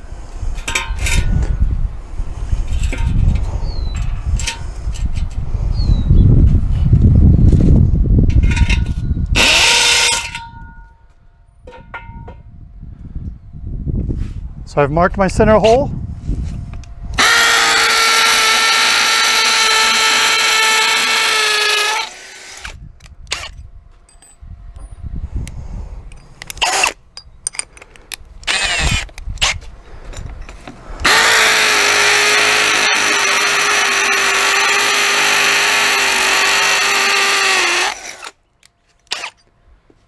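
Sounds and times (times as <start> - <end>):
electric drill boring into brick: 9.4 - 10.3, 17.2 - 23.5, 26.6 - 27.0, 28.5 - 29.6, 31.0 - 38.4, 39.1 - 39.4.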